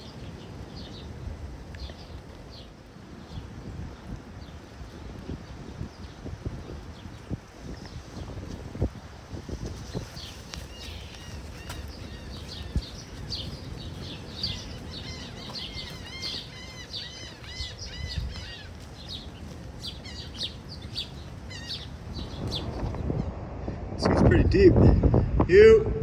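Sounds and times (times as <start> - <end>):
small birds chirping: 0.0 - 23.4
steady low rumble: 11.9 - 26.0.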